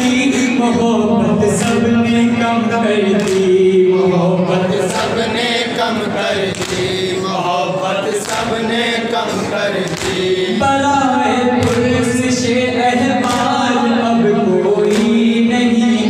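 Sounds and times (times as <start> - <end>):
men chanting in unison: 0.0 - 16.0
chest-beating slaps: 6.5 - 7.1, 9.8 - 10.4.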